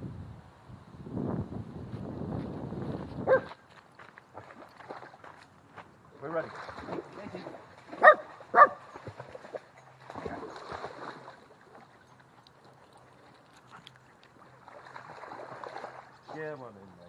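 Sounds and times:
dog barking: 3.3s - 3.5s, 8.0s - 8.8s
water splashing: 3.3s - 17.0s.

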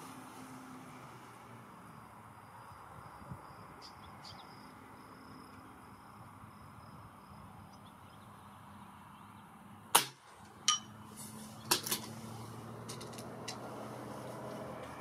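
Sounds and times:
air rifle shot: 9.9s - 10.3s.

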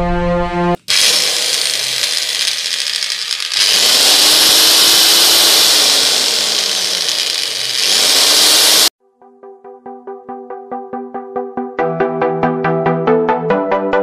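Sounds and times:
electric chainsaw motor running: 0.8s - 8.9s.

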